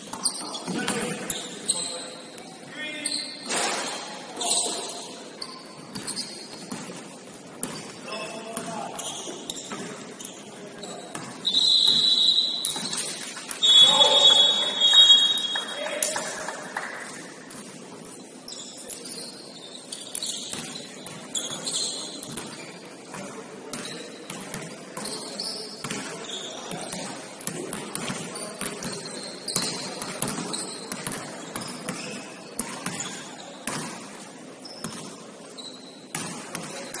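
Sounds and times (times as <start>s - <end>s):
basketballs bouncing on gym floor: 0.0s - 1.6s, 5.7s - 10.1s, 11.0s - 15.6s, 20.2s - 34.2s, 34.8s - 35.2s, 36.1s - 37.0s
sneaker squeaks on court: 0.0s - 15.6s, 18.2s - 37.0s.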